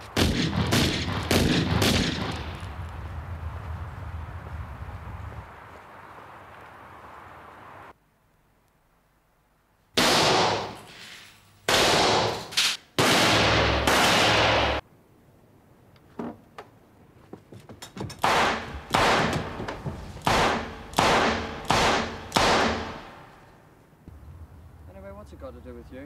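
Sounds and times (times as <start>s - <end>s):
gunshots echoing in rooms: 0.2s - 2.6s, 10.0s - 10.9s, 11.7s - 14.8s, 18.2s - 19.6s, 20.2s - 23.3s.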